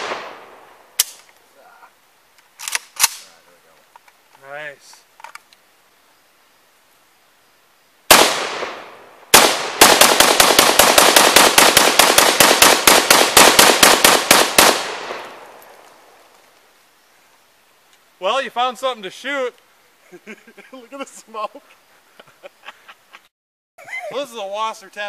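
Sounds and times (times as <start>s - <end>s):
gunshot echo: 0.0s - 1.2s, 8.1s - 15.6s
rifle shots: 0.0s - 1.2s, 8.1s - 15.6s.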